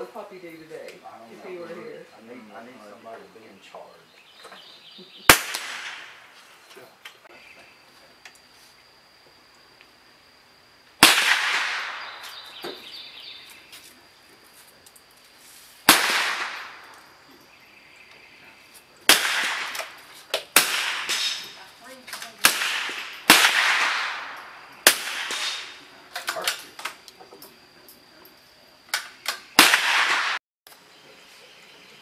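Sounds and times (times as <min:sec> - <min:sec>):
rifle shots echoing: 0:05.3 - 0:06.3, 0:11.0 - 0:12.6, 0:15.9 - 0:17.0, 0:19.1 - 0:21.6, 0:22.4 - 0:26.6, 0:29.6 - 0:30.4.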